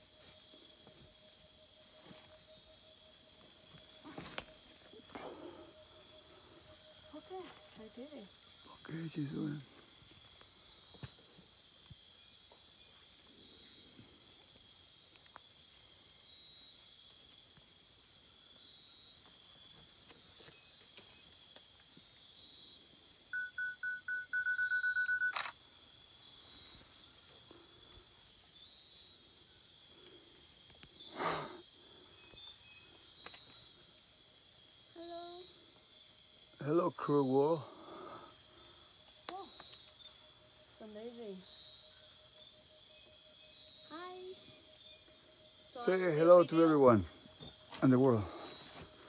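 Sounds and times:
insects trilling: 0:00.0 - 0:49.0
quick high beeps: 0:23.4 - 0:25.4.

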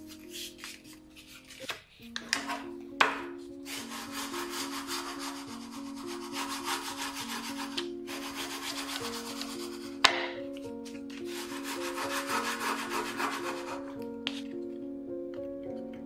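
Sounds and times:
soft background music: 0:00.0 - 0:16.0
fingers rubbing paper: 0:03.7 - 0:10.0, 0:11.3 - 0:14.0.

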